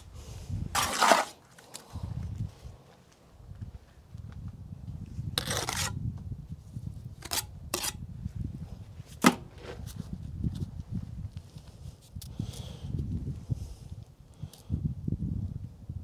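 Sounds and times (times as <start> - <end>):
brick scraping: 0.7 - 1.5, 5.4 - 6.0.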